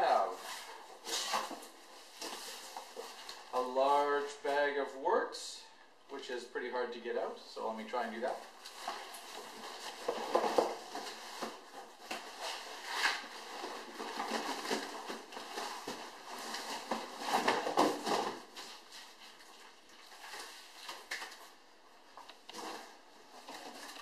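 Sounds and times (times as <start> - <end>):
plastic bag rustling and crinkling: 8.0 - 21.6, 22.4 - 24.0.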